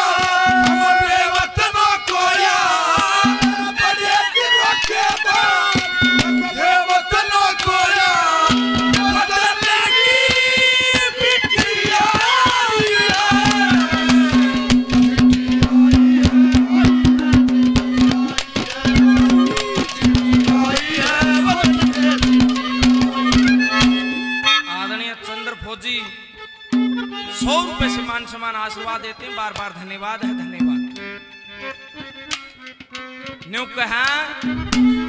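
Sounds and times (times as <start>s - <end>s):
held harmonium note: 0.0s - 35.0s
fast hand-drum strokes: 10.9s - 24.2s, 34.4s - 35.0s
wavering melody line: 13.1s - 29.2s.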